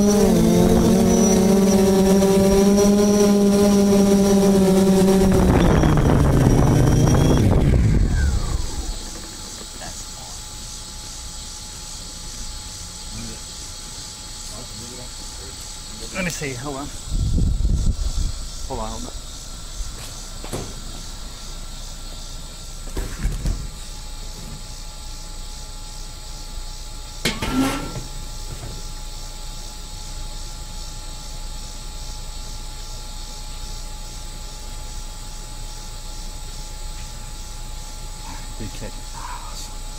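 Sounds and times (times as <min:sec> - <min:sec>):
drone propellers whining down: 0:00.0 - 0:12.1
faint high whining tones: 0:00.0 - 0:39.9.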